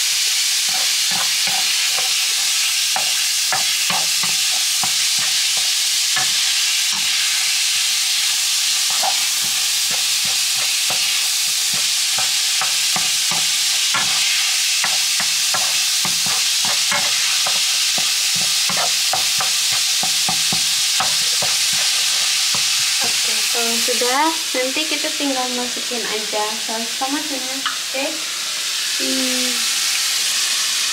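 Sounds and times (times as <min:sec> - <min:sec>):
meat sizzling in a frying pan: 0:00.0 - 0:30.9
tongs scraping a pan: 0:00.6 - 0:24.0.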